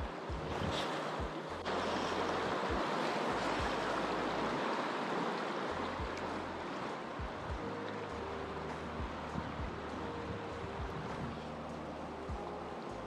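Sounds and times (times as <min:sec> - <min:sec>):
river rushing: 0:00.0 - 0:13.0.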